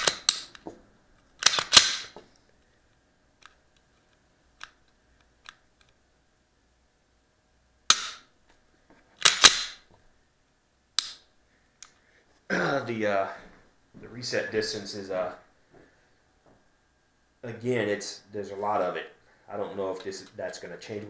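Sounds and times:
pistol slide metallic clacks: 0:00.0 - 0:00.6, 0:01.4 - 0:02.2, 0:07.9 - 0:08.3, 0:09.2 - 0:09.8.

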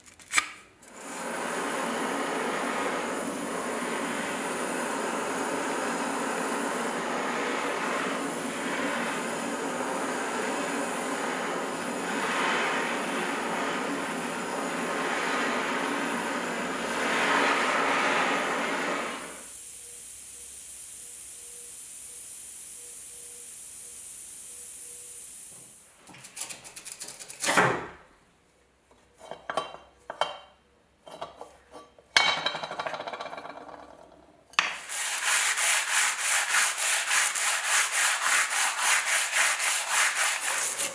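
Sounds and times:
gas torch hissing: 0:00.9 - 0:25.9, 0:34.6 - 0:40.9
sandpaper rubbing on metal: 0:34.8 - 0:40.9.

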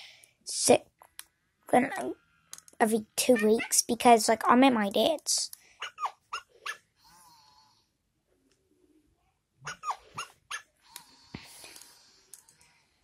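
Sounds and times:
toy puppy whimper: 0:05.8 - 0:06.8, 0:09.6 - 0:10.6
toy puppy yips: 0:05.8 - 0:06.8, 0:09.6 - 0:10.7.

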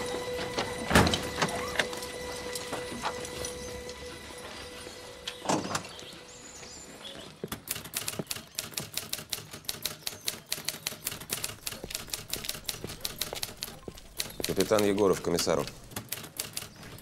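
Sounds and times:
typewriter keys clacking: 0:07.5 - 0:17.0.

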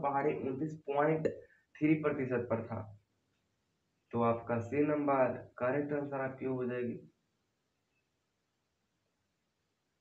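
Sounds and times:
man's voice: 0:00.0 - 0:02.8, 0:04.2 - 0:07.0.

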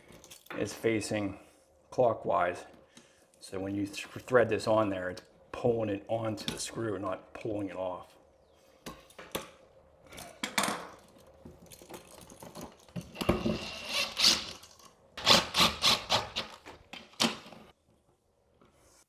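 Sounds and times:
cordless drill driving screws: 0:13.2 - 0:14.6, 0:15.2 - 0:16.6.

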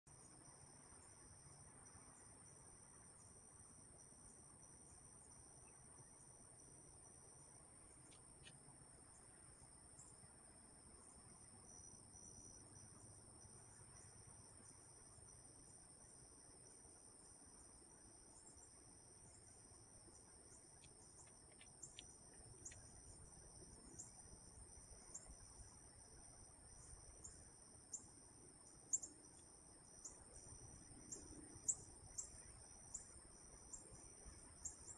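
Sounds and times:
high-pitched insect trill: 0:00.2 - 0:34.9
faint clicks: 0:08.0 - 0:08.6, 0:20.7 - 0:22.9
pulsing insect call: 0:17.6 - 0:34.9.

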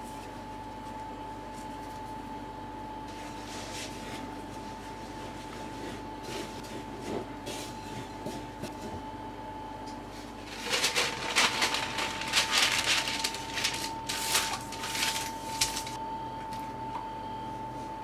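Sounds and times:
baking paper rustling and crinkling: 0:10.1 - 0:16.0.

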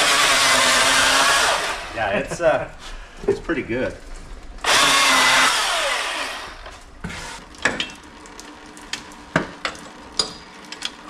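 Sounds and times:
electric chainsaw cutting wood: 0:00.0 - 0:02.0, 0:04.6 - 0:06.8.

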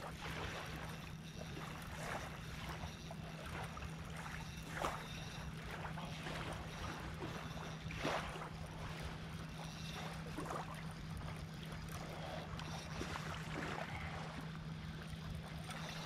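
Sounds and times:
small waves lapping and splashing: 0:00.0 - 0:16.0
steady low hum: 0:00.0 - 0:16.0.

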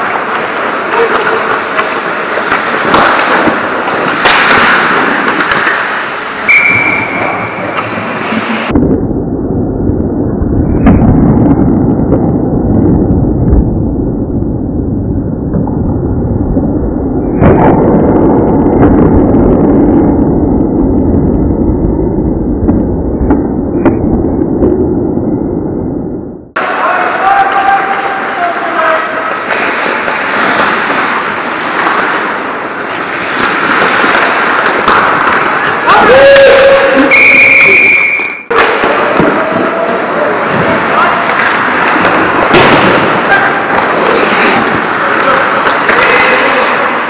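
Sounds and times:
puck impacts: 0:00.0 - 0:08.7, 0:26.6 - 0:37.6, 0:38.4 - 0:47.0
hockey sticks clacking: 0:00.0 - 0:08.8, 0:26.6 - 0:47.0
skates scraping ice: 0:00.0 - 0:08.8, 0:26.6 - 0:47.0.

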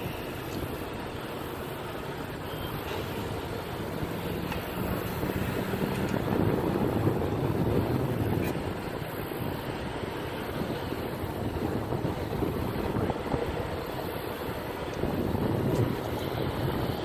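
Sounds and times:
diesel locomotives rumbling: 0:00.0 - 0:17.0.

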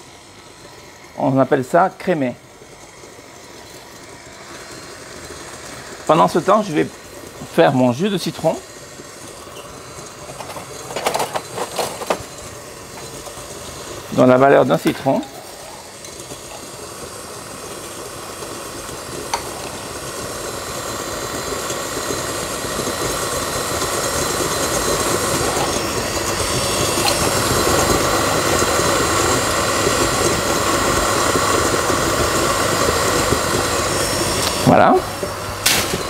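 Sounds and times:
stand mixer motor running: 0:00.0 - 0:36.0.

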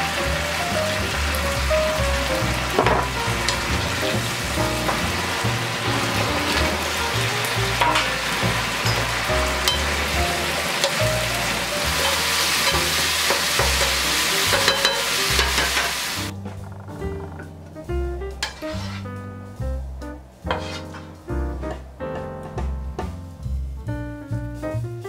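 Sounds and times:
pork sizzling in frying pan: 0:00.0 - 0:16.4, 0:18.4 - 0:19.0, 0:20.4 - 0:21.2.

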